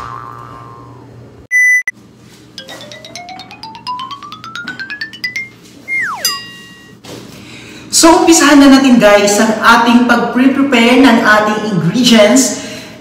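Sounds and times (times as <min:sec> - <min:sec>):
falling pitch glide: 0:00.0 - 0:01.4, 0:05.8 - 0:06.9
rising run of pitched notes: 0:00.0 - 0:01.4, 0:02.6 - 0:07.0
ringing tone: 0:02.6 - 0:07.0.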